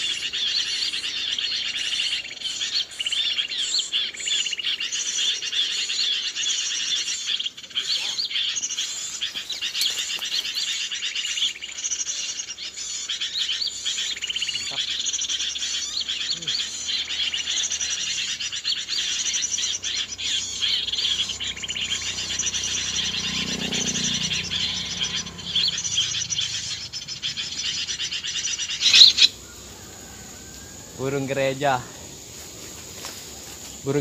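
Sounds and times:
small birds chattering: 0.0s - 34.0s.

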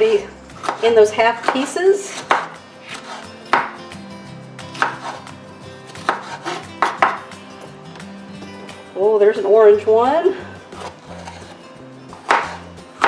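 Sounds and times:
knife slicing on cutting board: 0.6s - 3.7s, 4.7s - 5.3s, 5.9s - 7.2s, 10.7s - 12.7s.

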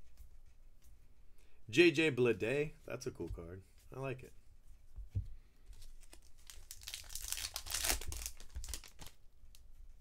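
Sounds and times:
wrapper crinkling and tearing: 5.8s - 9.2s.

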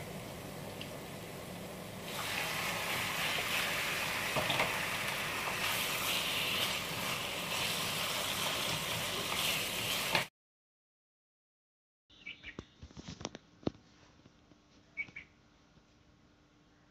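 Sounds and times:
meat sizzling in hot oil: 0.0s - 10.3s.

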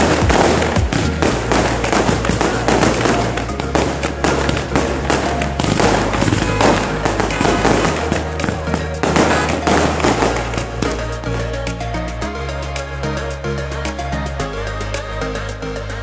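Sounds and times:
fireworks-like crackling: 0.0s - 11.2s
music with low bass line: 0.0s - 16.0s.

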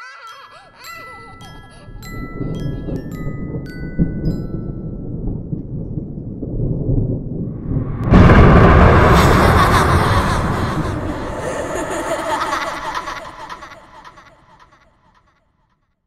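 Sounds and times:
chime melody: 0.0s - 5.2s
thunder rumble and clap: 2.1s - 14.7s.

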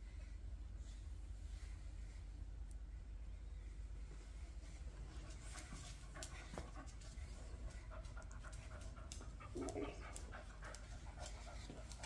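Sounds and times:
dog panting softly: 4.3s - 12.0s.

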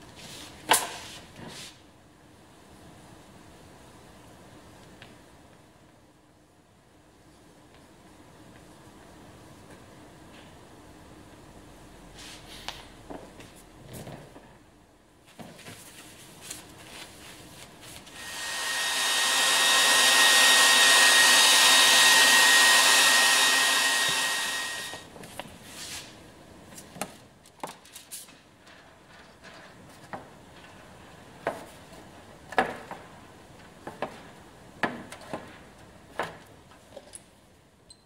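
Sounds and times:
hair dryer blowing: 18.1s - 25.1s.

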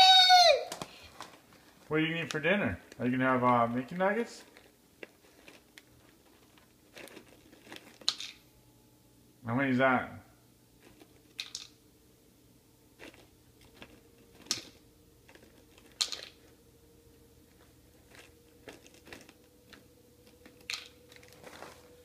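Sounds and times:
faint steady hum: 0.0s - 22.0s
crackers crinkling: 0.7s - 8.4s, 10.8s - 11.8s, 12.9s - 16.7s, 17.3s - 22.0s.

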